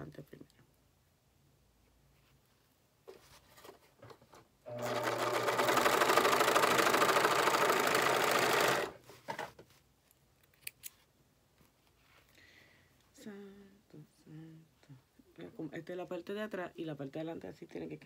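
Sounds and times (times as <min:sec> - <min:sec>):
sewing machine running: 0:04.7 - 0:09.0.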